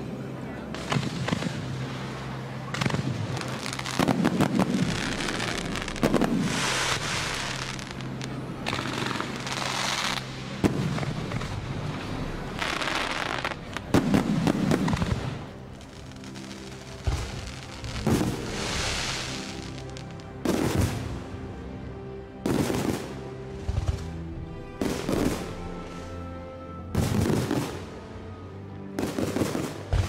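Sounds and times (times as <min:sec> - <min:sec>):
firework crackling: 0:00.8 - 0:21.1, 0:24.8 - 0:25.6.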